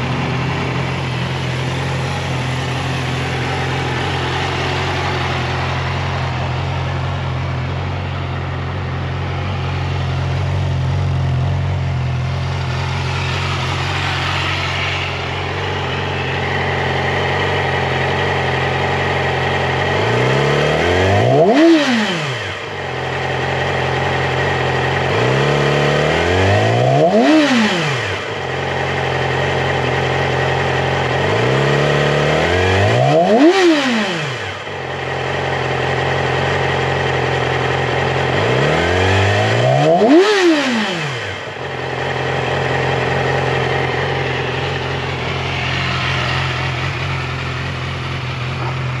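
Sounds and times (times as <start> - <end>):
engine revving: 0.0 - 49.0
motorcycle engine idling: 0.0 - 49.0.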